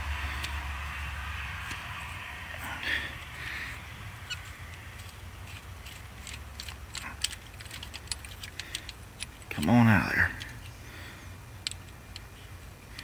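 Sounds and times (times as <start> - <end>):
ratchet wrench clicking: 4.2 - 9.6.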